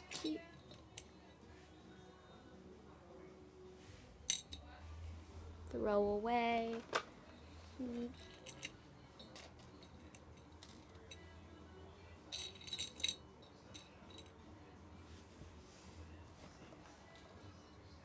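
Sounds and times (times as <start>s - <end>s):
trinkets and jewellery clinking: 0.0s - 1.3s, 4.2s - 4.7s, 7.4s - 11.3s, 12.2s - 14.4s.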